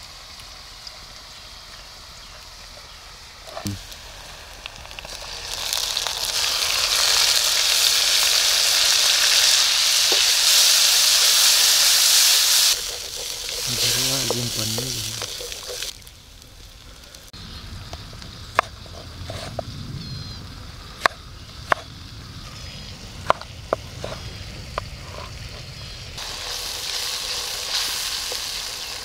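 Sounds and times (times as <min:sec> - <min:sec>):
paste sizzling in hot oil: 0:00.0 - 0:16.8, 0:26.2 - 0:29.0
wooden spoon stirring: 0:12.0 - 0:15.9.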